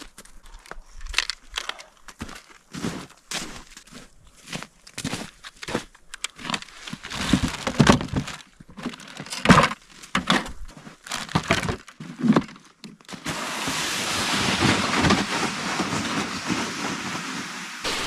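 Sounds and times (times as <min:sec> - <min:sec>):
gear knocks and rustling: 0:00.0 - 0:03.8, 0:04.8 - 0:13.1
sled dragged over snow: 0:13.1 - 0:18.0.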